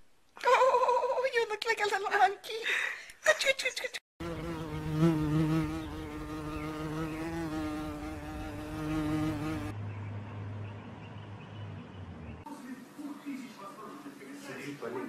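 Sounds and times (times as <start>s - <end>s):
insect buzzing: 4.2s - 9.7s.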